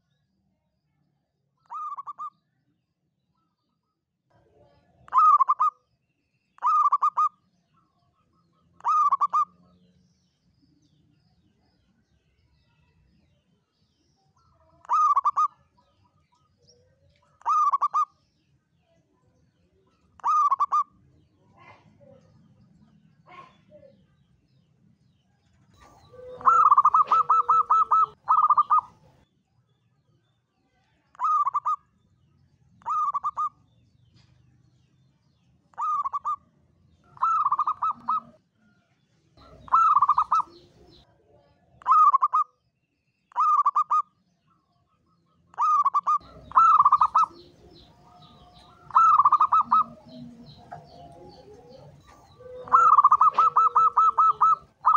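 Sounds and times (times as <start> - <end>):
dove cooing: 1.7 - 2.3, 5.1 - 5.7, 6.6 - 7.3, 8.8 - 9.5, 14.8 - 15.6, 17.4 - 18.1, 20.2 - 20.9, 25.8 - 29.2, 31.2 - 31.8, 32.8 - 33.6, 35.8 - 36.4, 37.1 - 38.4, 39.4 - 41.0, 43.3 - 44.0, 45.6 - 54.9.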